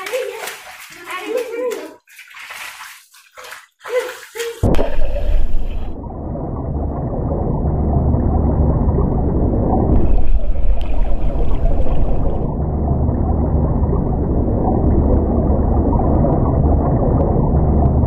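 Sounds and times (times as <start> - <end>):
muffled underwater water rumble: 4.6 - 18.0.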